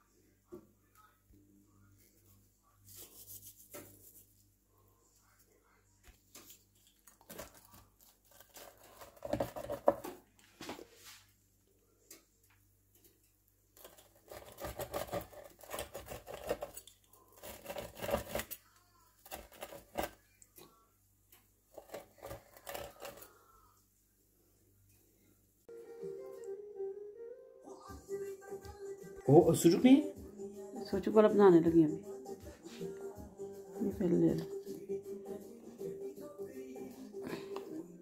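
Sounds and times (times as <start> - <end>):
pizza cutter rolling through crust: 13.8 - 18.6, 19.2 - 20.2, 21.7 - 23.3.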